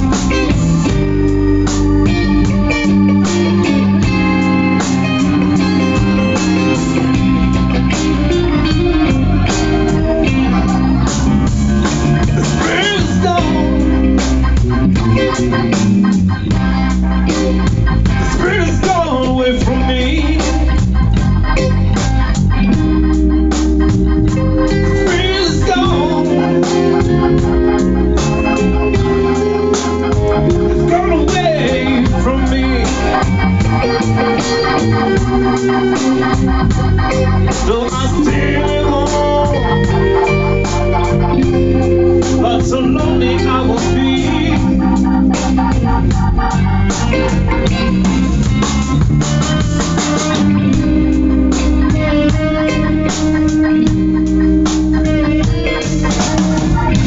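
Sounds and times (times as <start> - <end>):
bass guitar: 0.0 - 57.0
blues band playing: 0.0 - 57.0
electric guitar: 0.0 - 57.0
sustained organ chords: 0.0 - 57.0
wavering lead line: 0.0 - 57.0.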